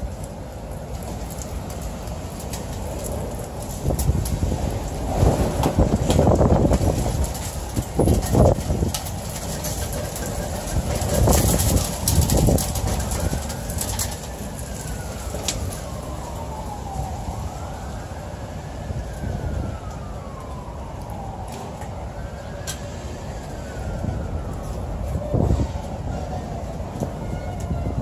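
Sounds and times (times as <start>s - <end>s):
emergency siren wailing: 0.0s - 28.0s
rain hissing: 0.3s - 17.8s.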